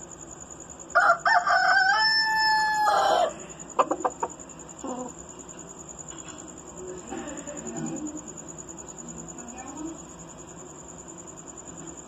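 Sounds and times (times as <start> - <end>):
rooster crowing: 0.9 - 4.3
chicken clucks: 3.7 - 5.1.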